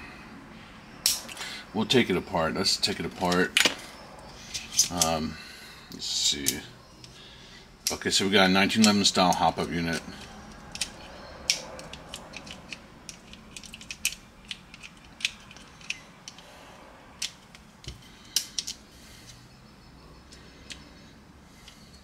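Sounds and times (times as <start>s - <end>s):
pistol parts clicking and knocking: 3.2s - 3.9s, 8.8s - 16.5s, 17.2s - 19.4s, 20.3s - 20.9s.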